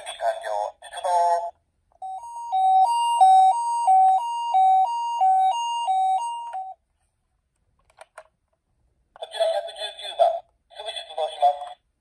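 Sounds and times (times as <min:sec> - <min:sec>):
toy ambulance two-tone siren: 0:02.0 - 0:06.8.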